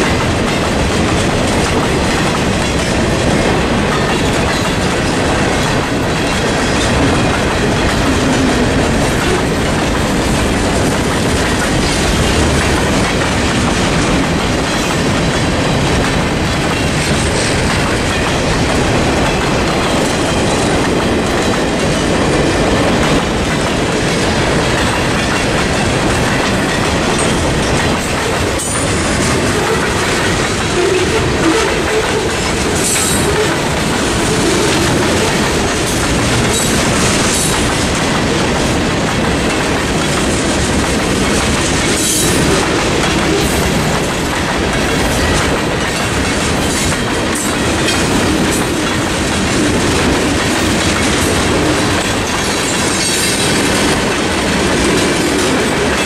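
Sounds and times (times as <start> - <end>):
freight train wheels clattering: 0.0 - 56.0.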